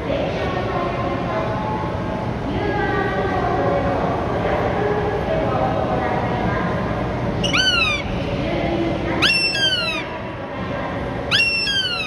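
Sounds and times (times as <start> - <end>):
goshawk calling: 7.4 - 8.1, 9.2 - 10.1, 11.3 - 12.0.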